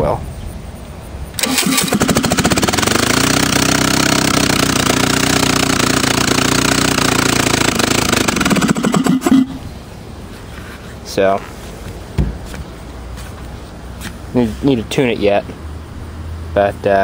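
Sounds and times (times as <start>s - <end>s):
engine running: 1.3s - 10.8s.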